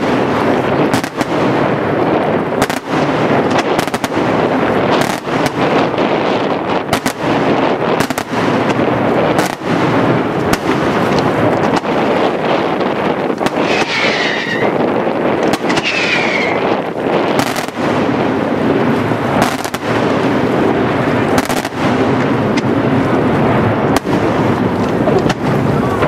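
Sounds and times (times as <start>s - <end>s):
fireworks bursting: 0.0s - 26.0s
sharp firework bangs: 0.0s - 26.0s.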